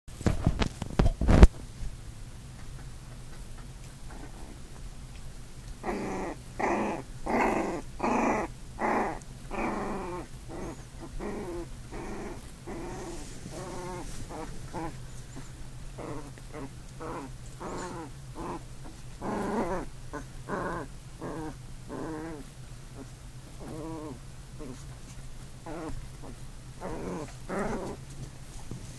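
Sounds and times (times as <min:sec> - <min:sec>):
puppies growling: 0:04.0 - 0:04.8, 0:05.8 - 0:28.3.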